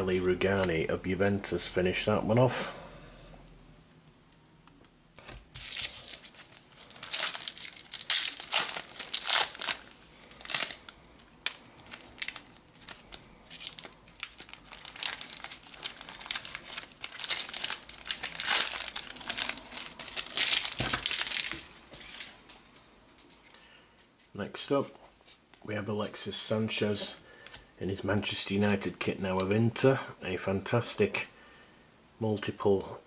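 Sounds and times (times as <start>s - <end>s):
foil wrapper crinkling: 5.6s - 22.3s.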